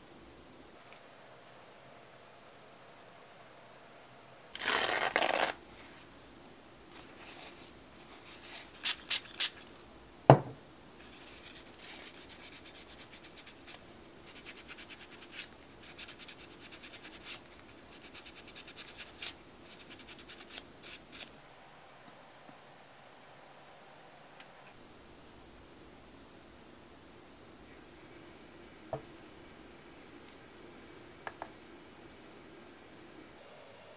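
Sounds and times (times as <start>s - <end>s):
paper towel crinkling: 4.6s - 6.0s.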